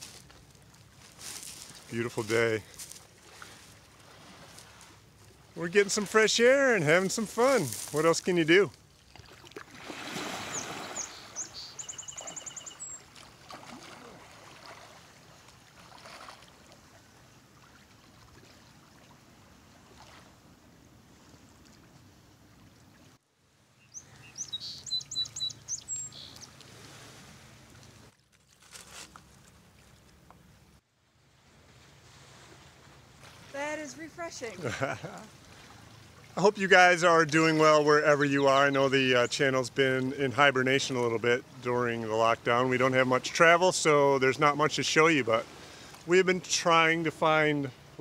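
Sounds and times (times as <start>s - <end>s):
hiss of water and breeze: 0.0s - 25.0s, 25.6s - 28.1s, 29.3s - 48.0s
small birds chirping: 10.4s - 13.1s, 23.8s - 26.6s, 38.2s - 39.5s.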